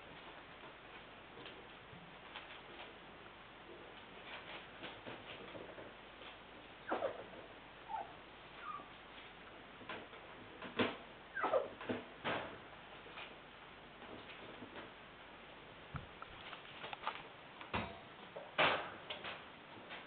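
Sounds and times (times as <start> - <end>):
puppies yipping and squeaking: 6.8 - 9.0, 11.3 - 11.8.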